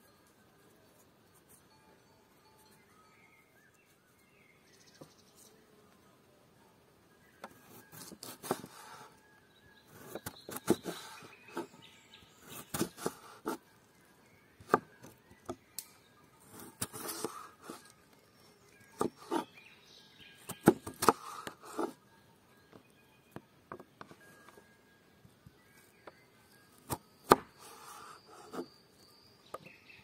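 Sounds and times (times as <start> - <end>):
knife slicing potato on board: 7.7 - 8.9, 12.5 - 13.6, 16.6 - 17.8.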